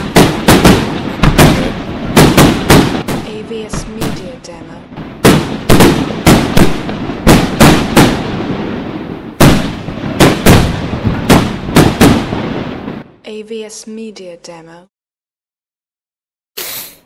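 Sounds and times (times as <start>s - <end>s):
firework shells bursting: 0.0s - 4.3s, 5.2s - 8.8s.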